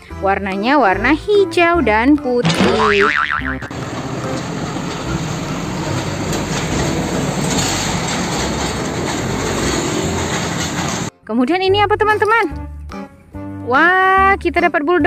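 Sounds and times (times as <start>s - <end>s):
truck driving past: 2.7s - 11.1s.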